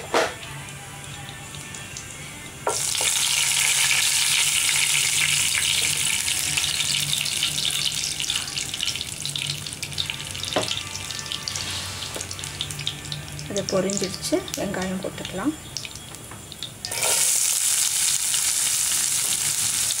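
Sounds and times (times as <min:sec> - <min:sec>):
spices sizzling in hot oil: 0:00.4 - 0:20.0.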